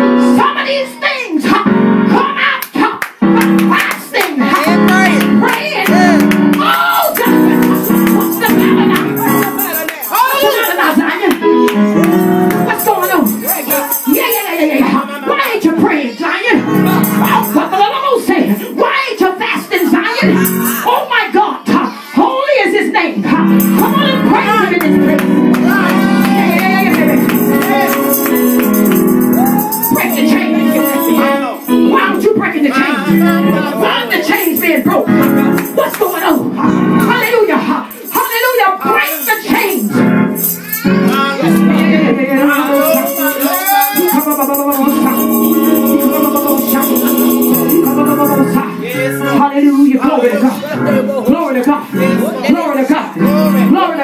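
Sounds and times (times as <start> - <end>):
keyboard chords: 0.0 - 15.7, 16.5 - 18.8, 20.2 - 21.2, 23.2 - 54.0
tambourine beat: 3.4 - 14.8, 16.7 - 17.8, 20.3 - 20.9, 23.5 - 32.2, 33.3 - 41.2, 42.4 - 49.0
woman singing gospel: 23.8 - 28.7, 29.4 - 40.0, 41.0 - 50.3.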